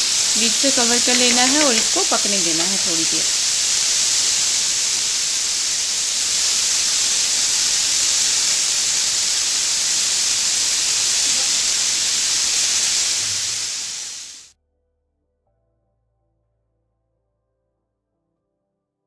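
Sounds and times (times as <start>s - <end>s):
chicken sizzling in frying pan: 0.0s - 14.5s.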